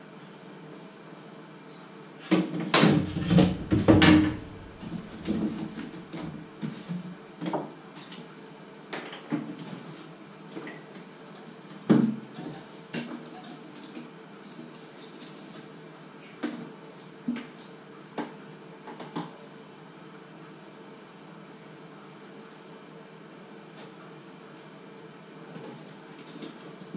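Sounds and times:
faint steady hum: 0:00.0 - 0:26.9
loud thump: 0:02.8 - 0:05.3.

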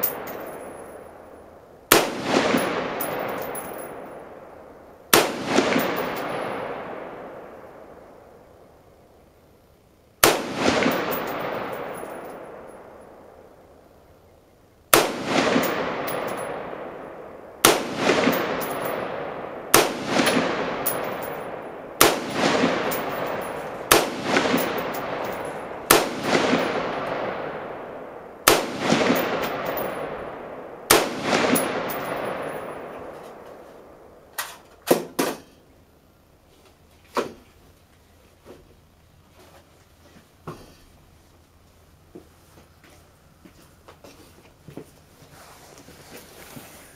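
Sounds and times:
rifle shots with echo: 0:00.0 - 0:08.7, 0:10.2 - 0:13.7, 0:14.9 - 0:34.3.

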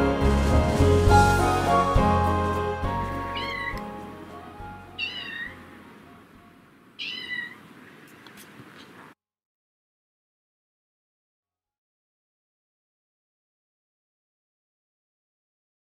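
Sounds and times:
soft background music: 0:00.0 - 0:06.7
cat meowing: 0:03.3 - 0:03.9, 0:05.0 - 0:05.6, 0:07.0 - 0:07.7.

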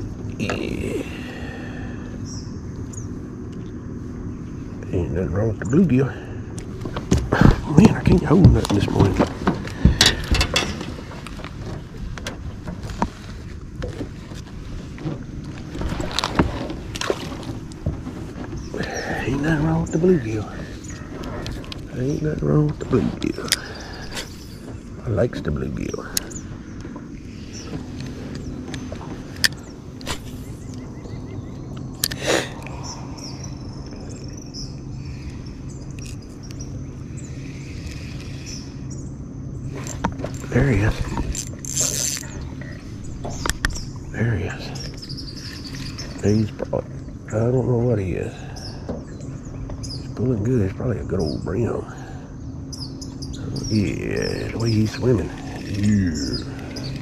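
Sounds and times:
insects trilling: 0:00.0 - 0:14.4, 0:15.1 - 0:57.0
steady low hum: 0:00.0 - 0:57.0
handling knocks and clicks: 0:06.6 - 0:18.7
wind rumble on microphone: 0:06.6 - 0:47.3.

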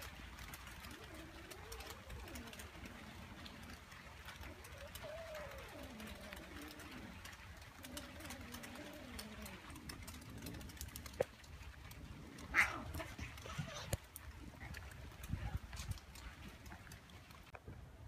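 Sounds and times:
low wavering animal call: 0:00.8 - 0:11.2.

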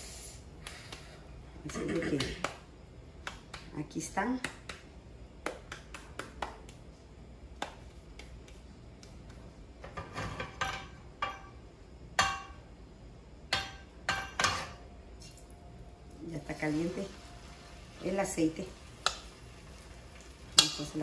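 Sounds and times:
frying pan metallic clanks: 0:13.5 - 0:14.8, 0:20.5 - 0:21.0.

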